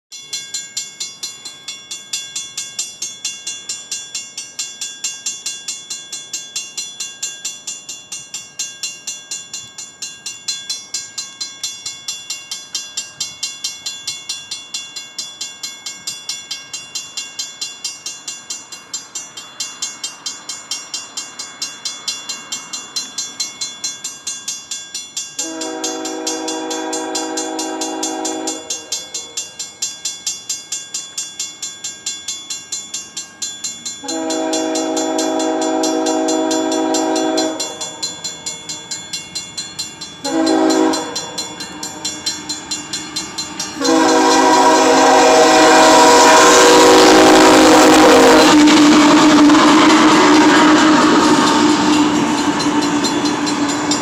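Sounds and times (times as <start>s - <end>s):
crossing bell ringing: 0.1s - 54.0s
locomotive engine and wheels rumbling: 0.6s - 54.0s
locomotive air horn blasts: 25.4s - 28.9s, 34.0s - 38.0s, 40.2s - 41.4s, 43.8s - 53.4s.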